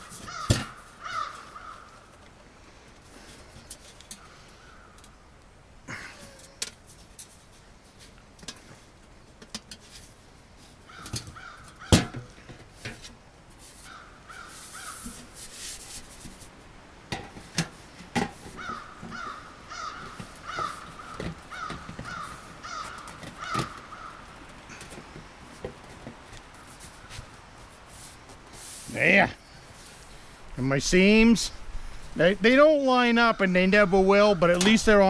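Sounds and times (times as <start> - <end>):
crow cawing: 0.1 - 2.1, 4.2 - 5.0, 10.9 - 12.1, 13.9 - 15.1, 18.6 - 24.9.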